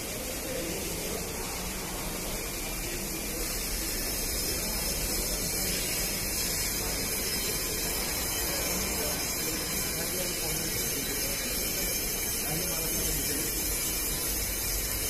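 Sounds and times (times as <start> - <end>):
steady hissing noise: 0.0 - 15.0.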